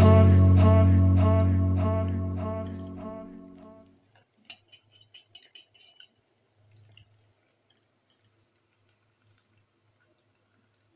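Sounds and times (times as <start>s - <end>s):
metal skimmer clicking against pot: 4.5s - 6.1s.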